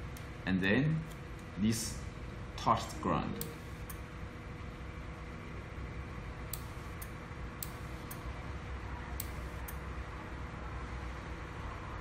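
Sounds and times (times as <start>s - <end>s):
low hum and hiss: 0.0s - 12.0s
faint steady tone: 2.7s - 4.1s.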